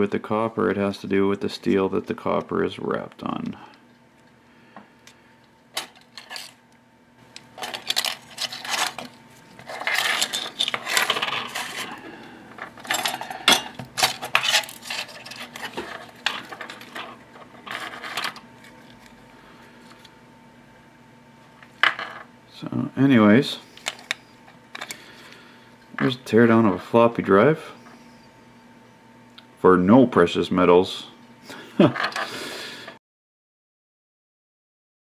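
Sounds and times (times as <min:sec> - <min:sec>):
small metal parts clinking and rattling: 0:05.8 - 0:06.6, 0:07.6 - 0:09.1, 0:09.7 - 0:11.9, 0:12.6 - 0:18.4.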